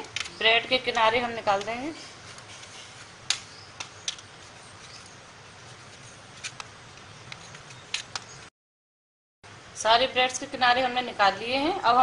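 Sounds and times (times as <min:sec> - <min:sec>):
faint steady hiss: 0:09.5 - 0:12.0.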